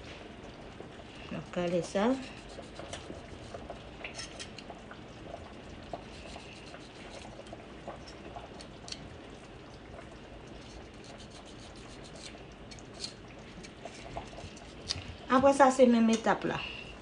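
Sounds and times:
knife clicking and scraping: 11.1 - 13.8.

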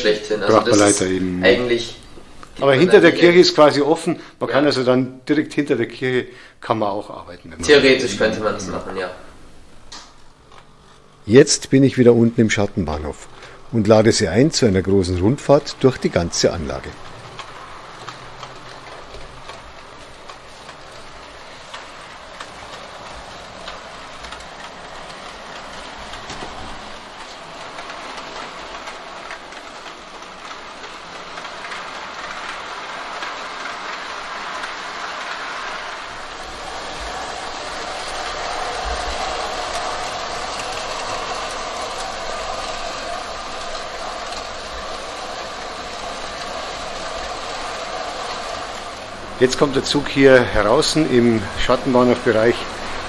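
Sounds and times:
model train wheels clicking: 0.0 - 6.2, 7.1 - 53.0
steady whine: 7.6 - 53.0.

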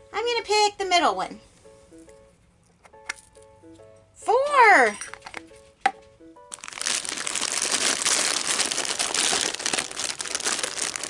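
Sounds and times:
foil packets crinkling: 6.5 - 11.0.

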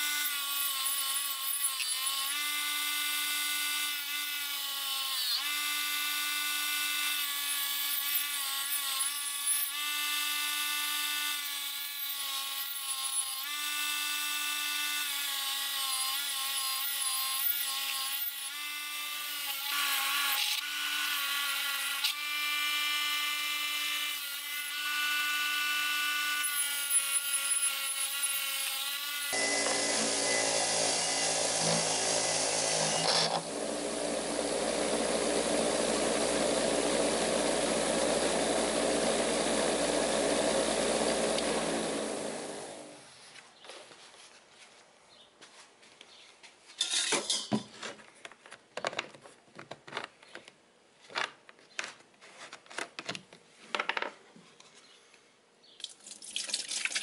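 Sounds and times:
bench grinder motor whine: 29.2 - 43.0.

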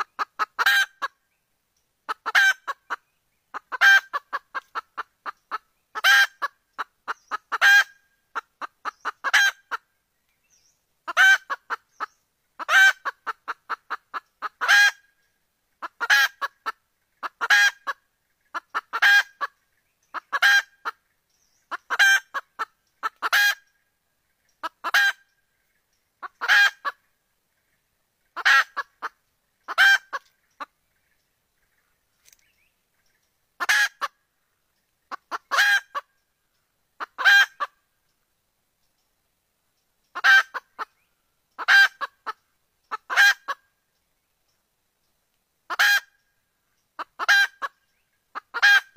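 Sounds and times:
hen clucking: 0.0 - 1.2, 2.1 - 9.9, 11.0 - 21.1, 21.7 - 31.7, 33.0 - 34.2, 35.0 - 36.2, 37.0 - 37.8, 40.1 - 43.7, 45.7 - 46.2, 47.0 - 48.9.

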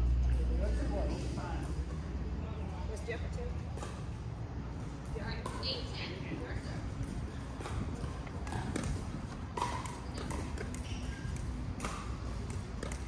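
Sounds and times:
low background hum: 0.0 - 13.0
ball bouncing on hard court: 4.8 - 13.0
paddles striking plastic ball: 7.6 - 13.0.

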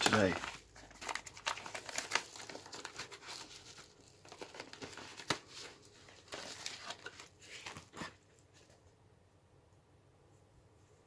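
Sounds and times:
paper envelope tearing and crinkling: 0.0 - 8.3.

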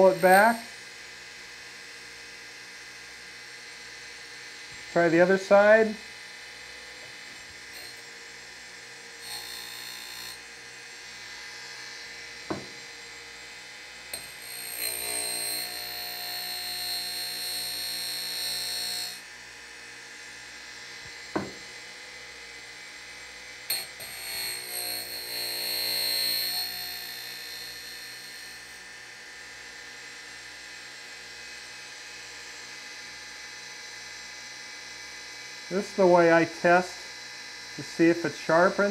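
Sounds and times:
high grinding hiss: 0.0 - 0.7, 4.7 - 6.1, 7.0 - 8.1, 9.2 - 10.5, 23.7 - 28.8, 37.8 - 38.9
grinding wheel humming: 0.0 - 0.8, 6.8 - 19.3, 21.0 - 22.0, 23.7 - 28.9.

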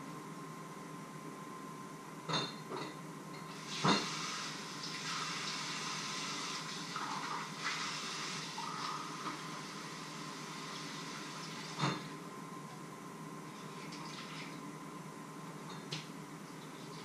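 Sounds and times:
water running from tap: 3.6 - 11.8.

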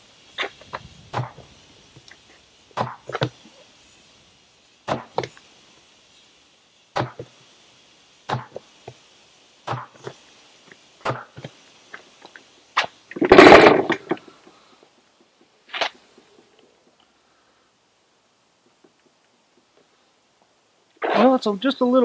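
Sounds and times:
tire thudding on ground: 0.4 - 1.5, 2.7 - 3.4, 4.8 - 5.3, 7.0 - 7.3
loud burst of noise: 13.1 - 14.2.

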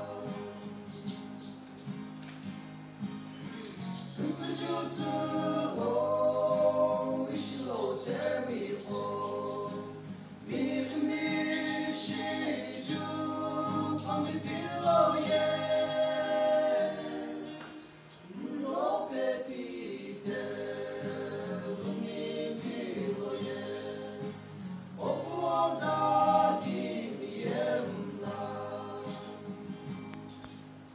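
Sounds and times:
men singing gospel in harmony: 0.0 - 1.5, 3.9 - 30.0.

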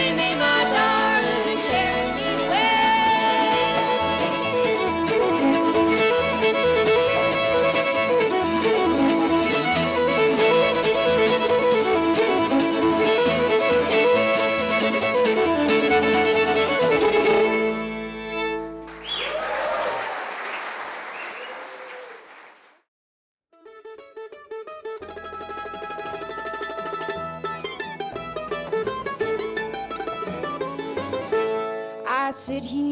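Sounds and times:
string band playing: 0.0 - 19.0, 23.8 - 32.8
audience applause: 18.8 - 22.8.

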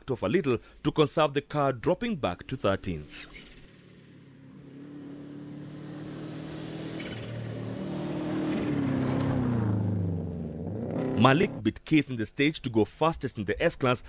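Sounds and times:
gravel and tyre noise: 2.4 - 11.6
rally car engine at high revs: 4.2 - 11.6.

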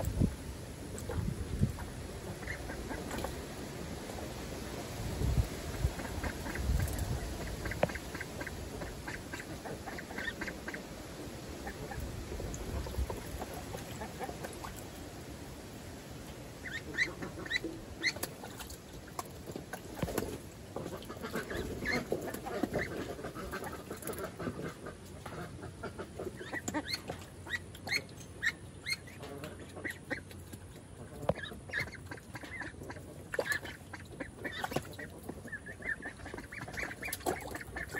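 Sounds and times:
wind buffeting microphone: 0.0 - 2.3, 4.8 - 8.0
ducklings peeping: 0.0 - 4.4, 5.0 - 15.1, 16.6 - 37.9
water splashing in tub: 31.2 - 37.9.

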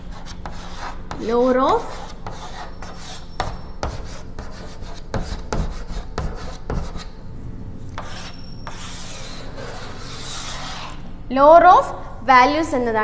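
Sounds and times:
chalk scraping on chalkboard: 0.0 - 7.1, 8.0 - 11.1
chalk taps: 0.1 - 7.1, 8.0 - 11.0.

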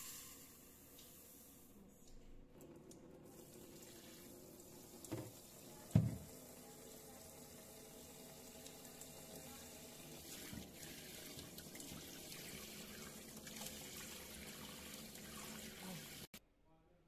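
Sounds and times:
tap water running into pot: 2.6 - 16.3.

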